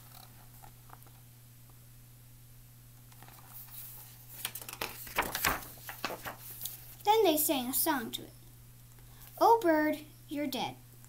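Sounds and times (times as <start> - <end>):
low steady hum: 0.0 - 11.0
book pages rustling: 3.1 - 7.0.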